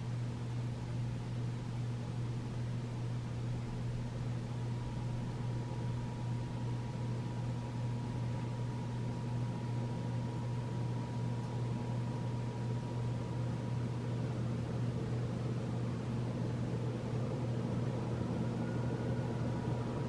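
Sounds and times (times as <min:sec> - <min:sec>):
ceiling fan motor hum: 0:00.0 - 0:20.0
rush of air from fan blades: 0:14.1 - 0:20.0.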